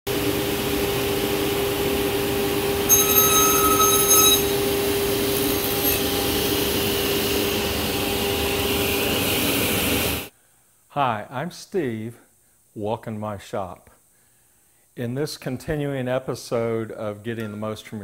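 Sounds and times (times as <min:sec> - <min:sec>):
saw high whine: 0:00.1 - 0:10.3
table saw motor hum: 0:00.2 - 0:10.3.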